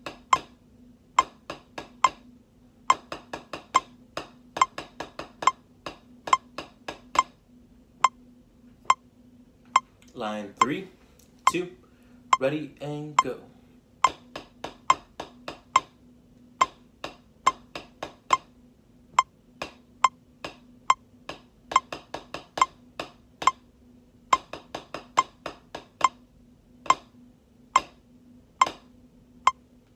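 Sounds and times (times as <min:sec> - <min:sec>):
drumsticks striking practice pad: 0:00.0 - 0:00.6, 0:01.2 - 0:02.3, 0:02.9 - 0:07.4, 0:14.0 - 0:16.0, 0:16.6 - 0:18.5, 0:19.6 - 0:23.6, 0:24.3 - 0:26.2, 0:27.8 - 0:28.0, 0:28.6 - 0:28.9.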